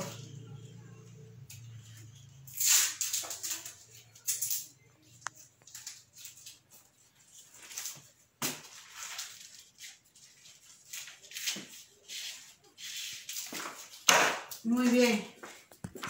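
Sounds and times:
paper cards rustling: 5.1s - 14.1s.

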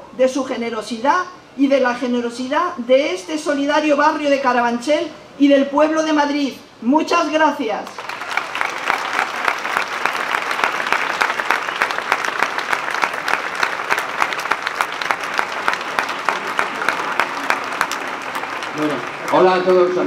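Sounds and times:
crowd applauding: 8.0s - 20.0s.

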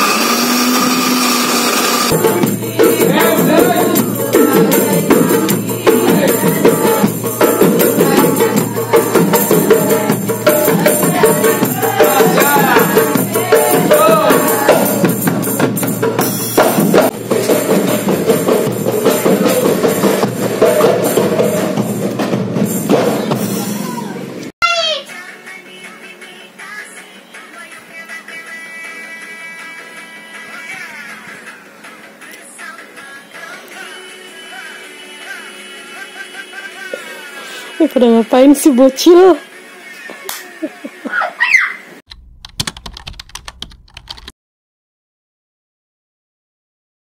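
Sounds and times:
countertop blender running: 0.0s - 2.2s
voices singing: 0.0s - 15.7s, 25.0s - 37.8s
frame drums beating: 2.1s - 24.0s.

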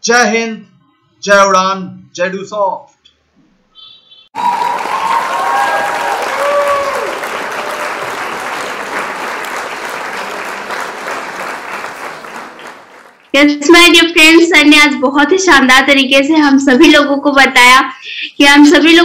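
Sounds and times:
people clapping: 4.4s - 13.4s.

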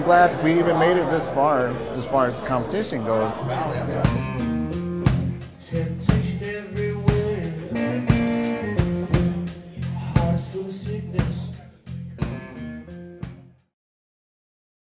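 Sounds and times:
electric blues band playing: 3.4s - 13.5s
drum beat: 3.8s - 12.6s.

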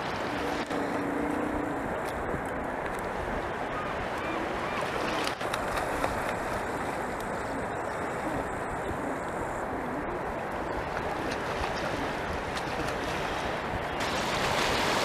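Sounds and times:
sea water lapping: 0.0s - 15.0s
wind noise on microphone: 0.0s - 15.0s.

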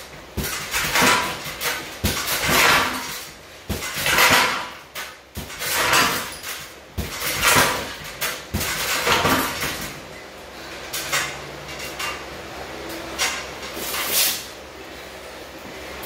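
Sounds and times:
gloved punches on punching bags: 0.0s - 10.1s.

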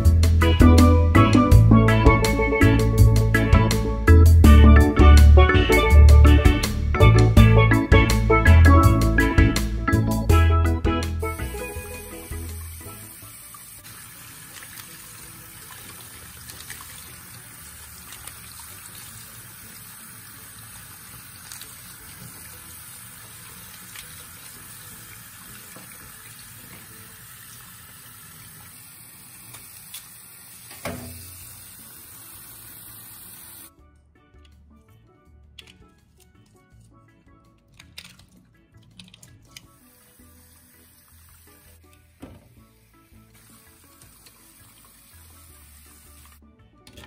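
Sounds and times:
tap water running into sink: 11.3s - 33.7s, 39.6s - 47.0s.

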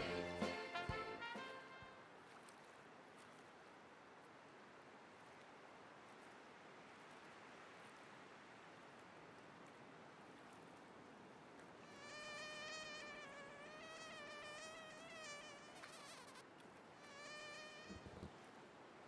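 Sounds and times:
faint steady hiss: 0.0s - 19.0s
housefly buzzing: 11.8s - 16.4s, 17.0s - 18.3s.

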